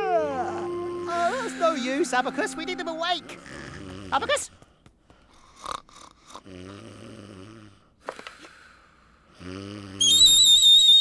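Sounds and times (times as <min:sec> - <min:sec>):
shrill wooden pipe note: 0:00.2 - 0:03.3
cartoon snoring: 0:00.4 - 0:04.2, 0:05.4 - 0:07.9, 0:09.3 - 0:10.0.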